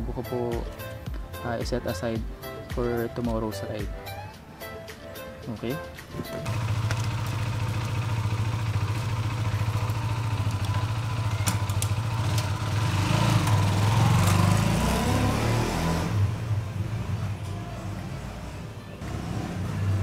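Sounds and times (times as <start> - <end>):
motorcycle engine idling and revving: 6.3 - 20.0.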